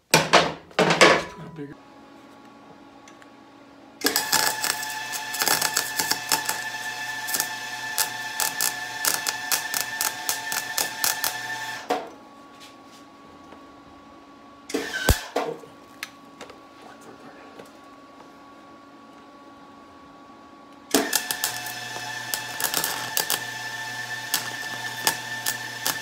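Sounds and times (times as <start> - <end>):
steady welder hum: 0.0 - 26.0
welder crackling sizzle: 4.0 - 12.1, 14.7 - 15.4, 20.9 - 26.0.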